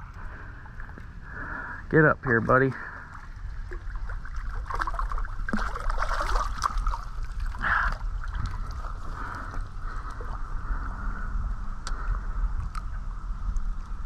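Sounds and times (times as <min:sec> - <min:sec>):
creek water splashing: 0:02.3 - 0:10.5.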